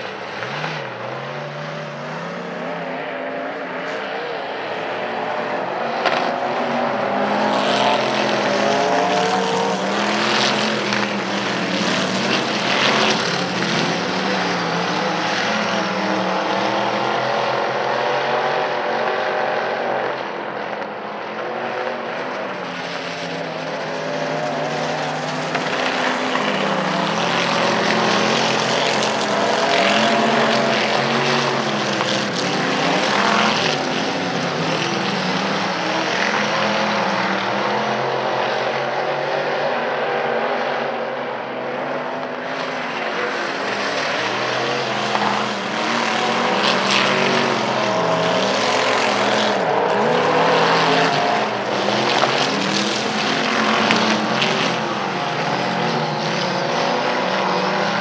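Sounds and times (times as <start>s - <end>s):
race car engines: 0.0s - 58.0s.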